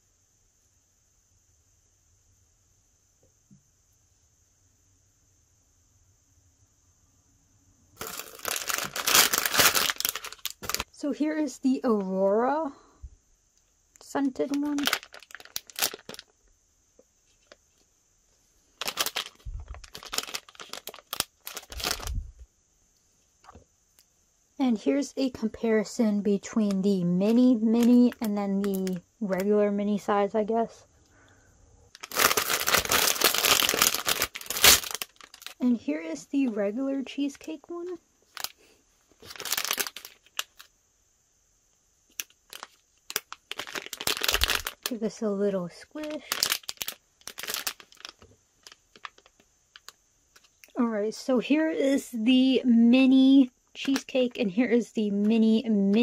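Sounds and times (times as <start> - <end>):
plastic bag crinkling: 8.0 - 11.0, 14.3 - 16.4, 18.7 - 22.3, 26.6 - 29.5, 31.9 - 35.7, 38.3 - 40.7, 42.1 - 45.0, 46.0 - 50.4.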